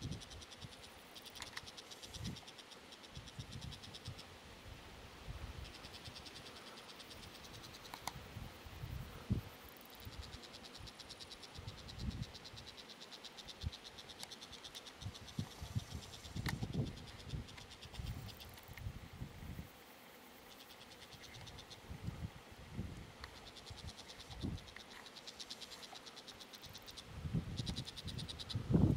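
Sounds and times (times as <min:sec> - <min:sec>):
insects trilling: 0:00.0 - 0:28.9
sharp clicks: 0:00.3 - 0:04.2, 0:07.6 - 0:08.2.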